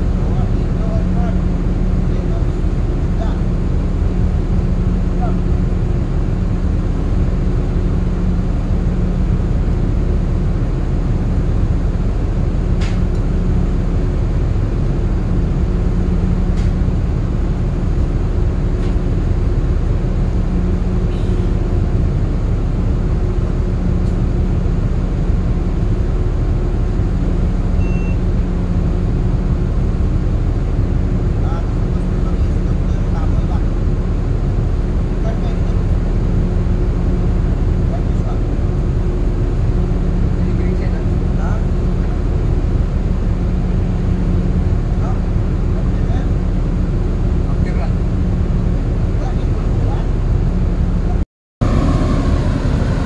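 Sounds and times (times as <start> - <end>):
ship machinery drone: 0.0 - 53.0.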